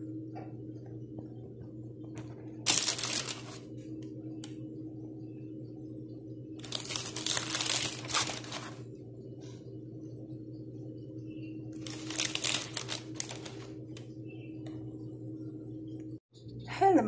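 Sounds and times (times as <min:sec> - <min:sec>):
steady low hum: 0:00.0 - 0:17.0
paper crinkling and rustling: 0:02.6 - 0:03.8, 0:06.6 - 0:08.8, 0:11.8 - 0:14.0.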